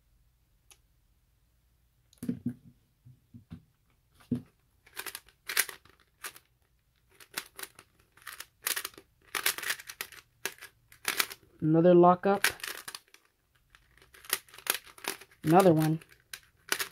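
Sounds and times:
plastic cube clacking and scraping: 4.8 - 11.6, 12.4 - 16.9.

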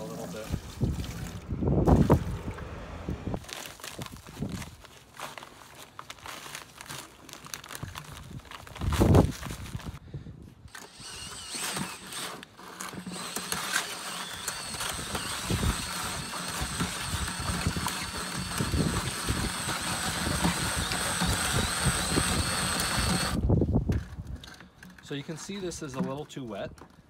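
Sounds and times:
drill mixer whining: 10.7 - 23.4.

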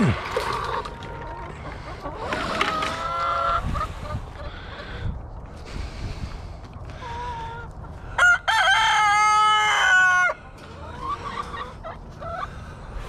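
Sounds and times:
chicken calls: 0.0 - 13.0
rooster crowing: 8.2 - 10.4.

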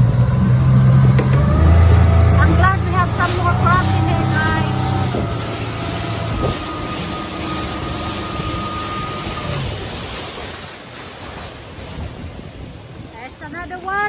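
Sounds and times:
steady whine: 0.0 - 9.9
boat engine running: 0.0 - 13.8
water rushing along hull: 0.0 - 14.0.

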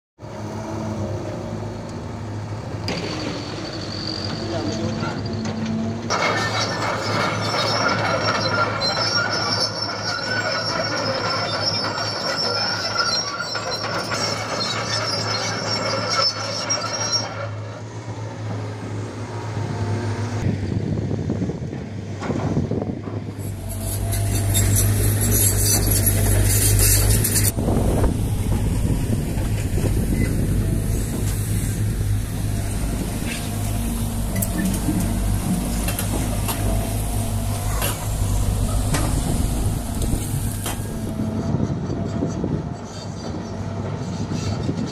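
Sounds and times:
excavator diesel engines running: 0.2 - 44.9
high whining squealing tones: 0.4 - 20.8, 23.3 - 44.9.

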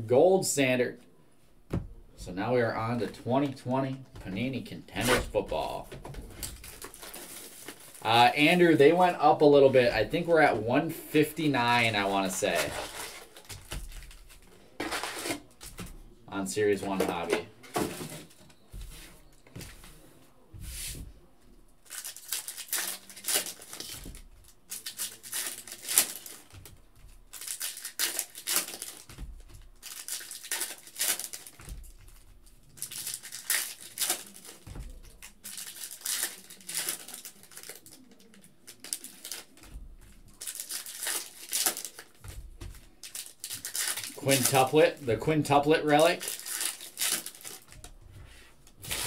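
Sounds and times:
foil wrappers tearing and crinkling: 6.4 - 8.2, 11.8 - 15.6, 21.8 - 26.6, 27.3 - 29.1, 29.8 - 39.7, 40.3 - 42.3, 43.0 - 47.8, 48.8 - 49.0.

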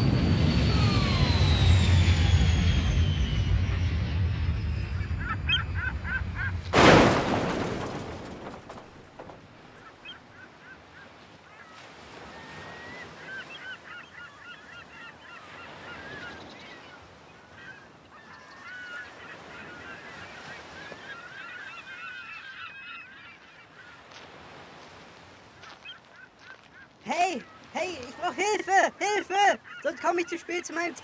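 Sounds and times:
steady rushing background: 0.0 - 9.4
flock of birds calling: 4.9 - 31.0.

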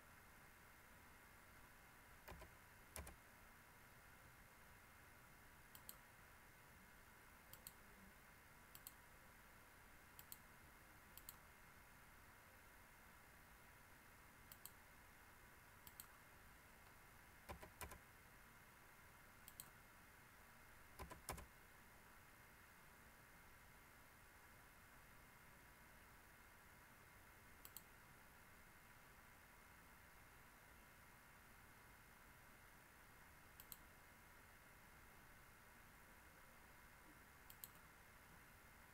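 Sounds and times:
faint steady hum and hiss: 0.0 - 38.9
computer mouse clicks: 2.2 - 3.2, 5.7 - 6.0, 7.5 - 7.8, 8.7 - 9.0, 10.2 - 10.5, 11.2 - 11.4, 14.5 - 14.8, 15.8 - 16.2, 16.8 - 18.0, 19.4 - 19.8, 21.0 - 21.5, 27.6 - 28.0, 33.6 - 33.9, 37.5 - 37.9.

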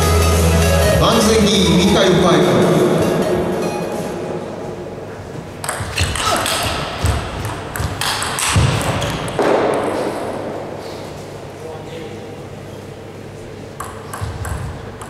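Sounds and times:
table tennis ball clicks: 13.8 - 15.0.

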